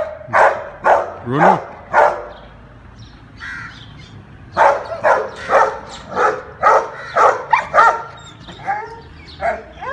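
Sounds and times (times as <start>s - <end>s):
dog barking: 0.0s - 2.3s, 4.6s - 8.2s
dog whining: 7.1s - 9.9s.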